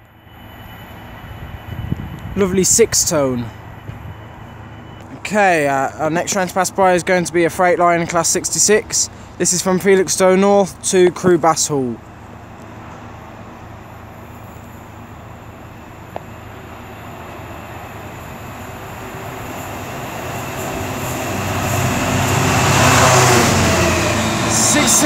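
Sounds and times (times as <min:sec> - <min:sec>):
diesel locomotive engine hum: 0:00.0 - 0:25.0.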